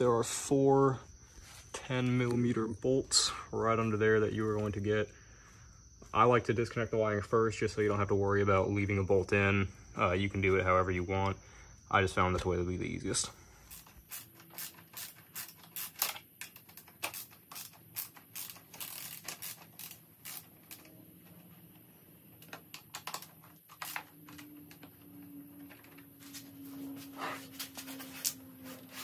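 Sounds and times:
ratchet wrench clicking: 13.7s - 20.9s.

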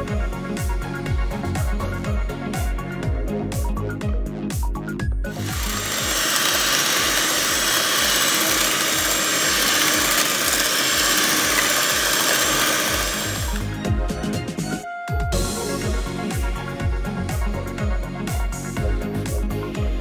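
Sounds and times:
background music with a beat: 0.0s - 6.8s, 7.7s - 20.0s
electric hand mixer whipping cream: 5.3s - 14.0s.

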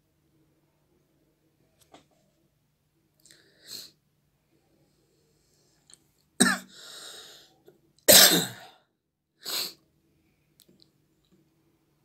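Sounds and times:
person coughing: 6.4s - 6.7s, 8.1s - 8.8s.

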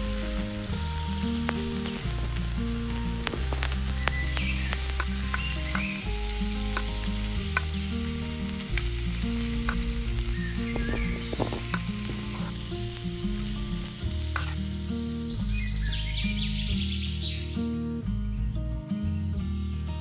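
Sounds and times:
hot oil sizzling: 0.0s - 16.6s
background music: 0.0s - 20.0s
utensil clicking against pan: 6.7s - 7.8s, 14.3s - 14.6s.

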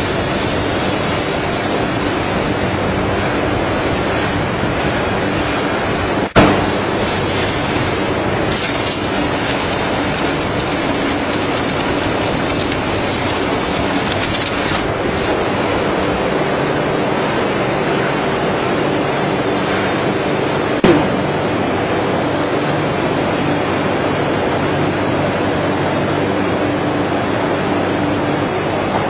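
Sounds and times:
machine clatter with low hum: 0.0s - 29.0s
sharp thump: 6.4s - 6.8s
fast rattling ticks: 8.5s - 14.9s.

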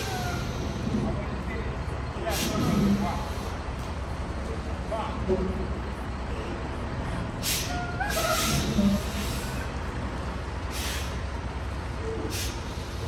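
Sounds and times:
diesel engine rumbling: 0.0s - 13.0s
air brake hisses: 2.3s - 3.6s, 7.4s - 9.7s, 10.7s - 11.2s, 12.2s - 13.0s.

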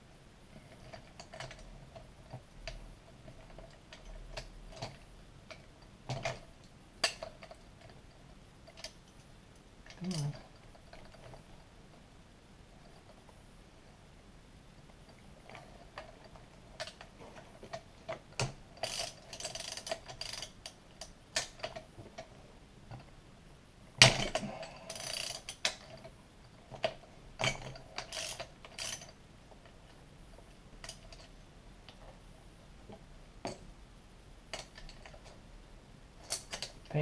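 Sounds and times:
hand ratchet clicking: 18.8s - 21.8s, 24.3s - 26.0s, 28.0s - 29.1s.

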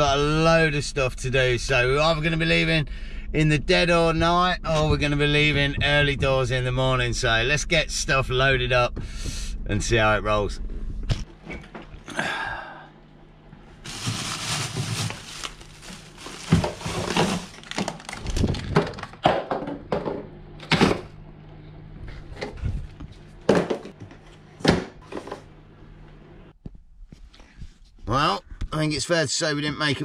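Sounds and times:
faint low hum: 0.0s - 30.0s
plastic bags rustling: 13.8s - 19.2s.

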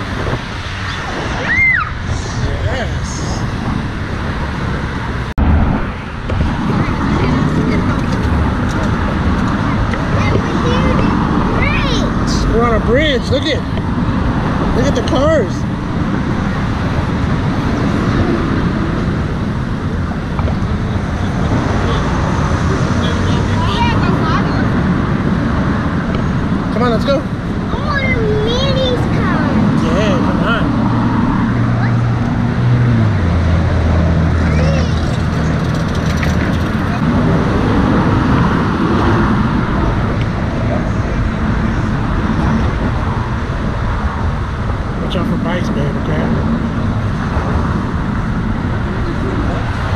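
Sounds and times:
road traffic rumble: 0.0s - 49.9s.

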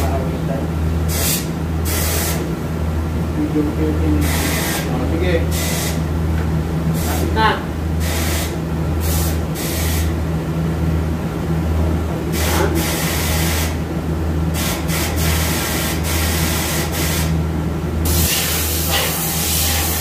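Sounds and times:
machine hum: 0.0s - 20.0s
short hiss bursts: 18.1s - 20.0s.

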